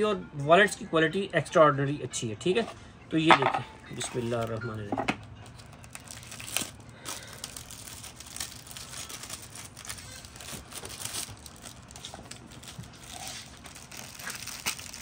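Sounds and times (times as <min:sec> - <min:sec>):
packaging rustling and crinkling: 0:04.0 - 0:15.0.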